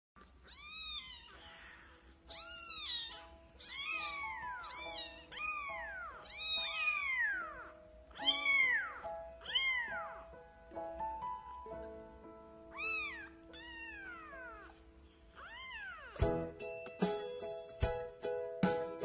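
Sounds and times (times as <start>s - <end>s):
soft background music: 0.2s - 19.0s
kitten meowing: 0.4s - 10.4s, 12.7s - 14.8s, 15.4s - 16.2s.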